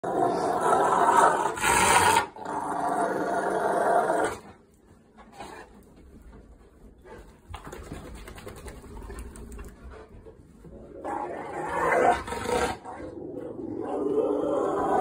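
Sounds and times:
dog growling: 0:00.0 - 0:04.5, 0:10.8 - 0:15.0.

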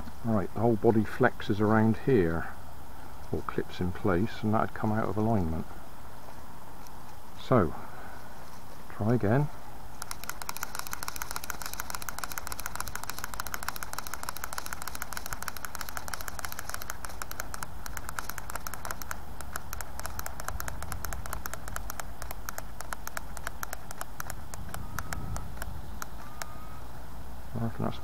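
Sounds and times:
rapid plastic clicking of winding: 0:10.0 - 0:26.5
wind rumble on microphone: 0:24.3 - 0:26.0.

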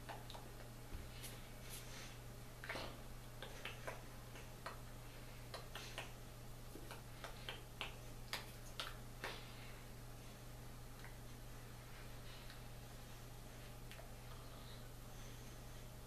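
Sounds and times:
steady low hum: 0:00.0 - 0:16.0
hands clicking and tapping: 0:05.5 - 0:06.2, 0:06.8 - 0:09.4.

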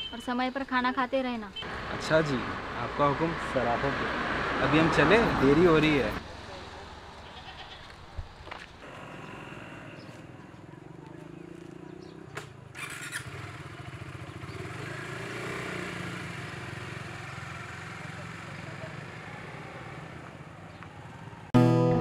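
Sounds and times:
motorcycle engine idling: 0:08.8 - 0:21.5.

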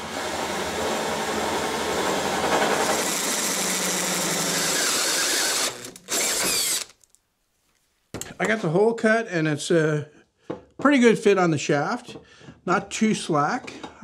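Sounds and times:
drill hole saw grinding steel: 0:00.0 - 0:07.0.

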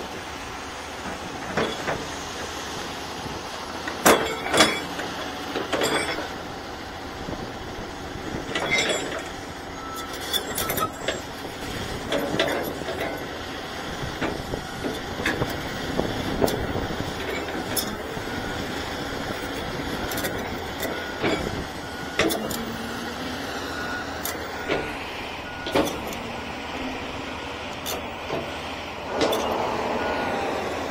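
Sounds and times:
excavator engine running: 0:00.0 - 0:30.9.

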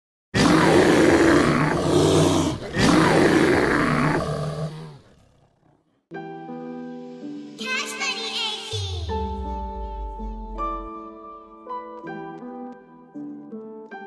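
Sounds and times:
animal roaring: 0:00.4 - 0:06.0
music with held chords: 0:06.2 - 0:14.0.

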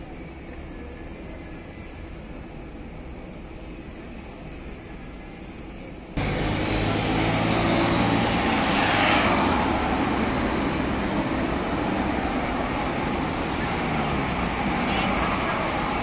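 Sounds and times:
engine hum: 0:00.0 - 0:16.0
tyre rush of passing vehicles: 0:06.2 - 0:16.0.

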